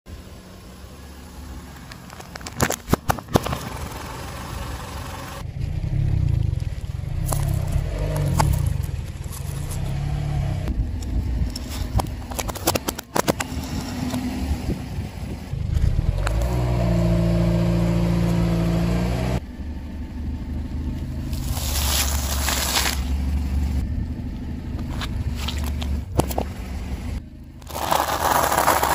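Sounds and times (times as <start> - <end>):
car engine humming: 0.1 - 28.9
tyre crushing small objects: 1.7 - 3.8, 21.3 - 23.2, 27.6 - 28.9.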